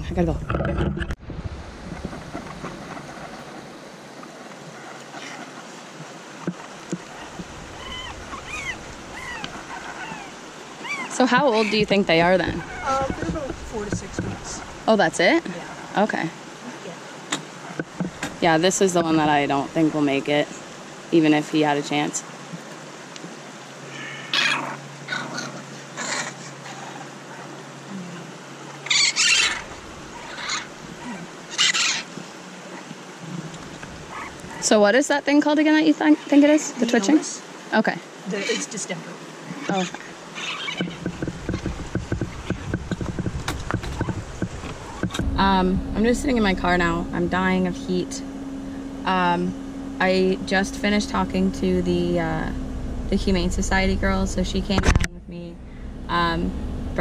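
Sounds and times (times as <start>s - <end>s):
steady rushing noise: 0.0s - 23.4s, 29.5s - 32.6s, 40.8s - 57.0s
baby raccoons crying: 7.1s - 13.3s, 28.8s - 32.1s, 34.0s - 34.7s, 39.5s - 42.3s.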